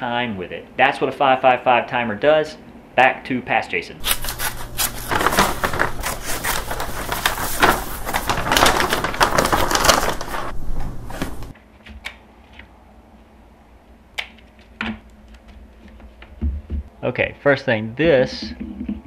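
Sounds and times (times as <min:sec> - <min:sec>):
scissors cutting paper bag: 0:04.0 - 0:10.6
paper being handled: 0:04.0 - 0:11.5.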